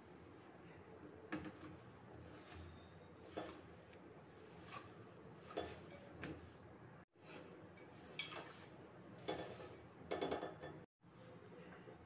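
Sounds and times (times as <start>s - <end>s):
food scuffing in steel bowl: 1.5s - 6.6s.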